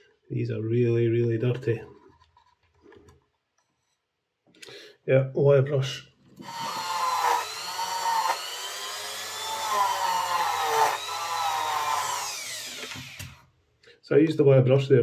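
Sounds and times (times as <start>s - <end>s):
rotary tool wire brush whining: 6.4s - 13.4s.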